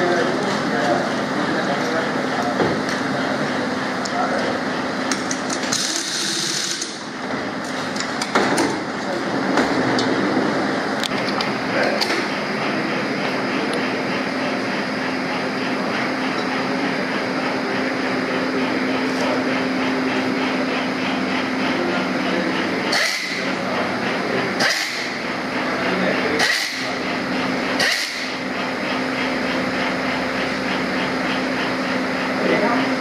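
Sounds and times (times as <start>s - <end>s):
hum of assembly-line machinery: 0.0s - 33.0s
pneumatic nutrunner bursts: 5.4s - 7.1s, 22.9s - 23.5s, 24.6s - 25.2s, 26.4s - 27.0s, 27.8s - 28.4s.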